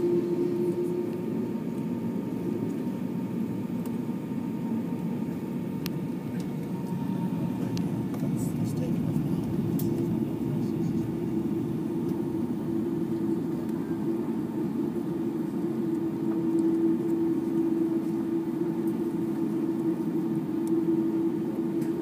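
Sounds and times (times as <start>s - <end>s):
jet engines droning: 0.0s - 22.0s.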